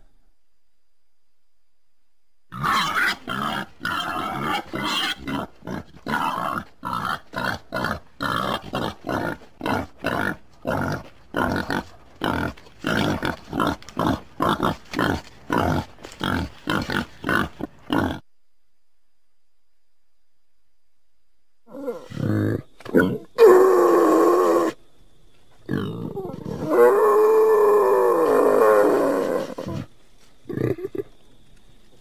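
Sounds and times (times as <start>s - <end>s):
wild boar grunting: 2.5s - 18.2s, 25.6s - 31.1s.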